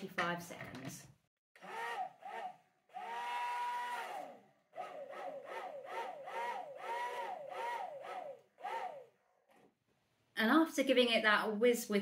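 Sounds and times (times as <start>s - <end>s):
stick blender whirring: 1.6s - 9.7s.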